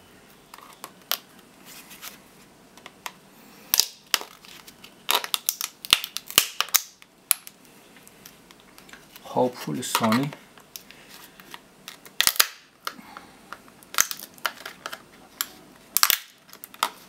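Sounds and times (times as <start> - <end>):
plastic case cracking and snapping: 2.8 - 4.5, 5.1 - 7.6, 11.5 - 13.0, 13.8 - 17.0.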